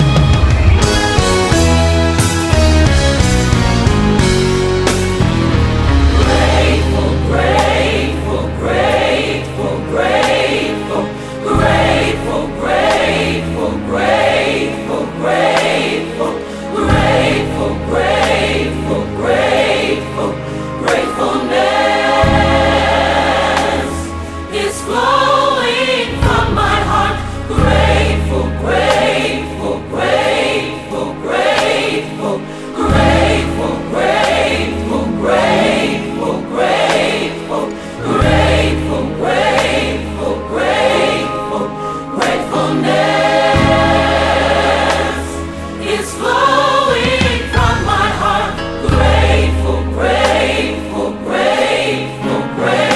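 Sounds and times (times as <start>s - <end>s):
backing band with steady beat: 0.0s - 8.0s, 43.3s - 49.5s
gospel choir singing: 0.0s - 52.9s.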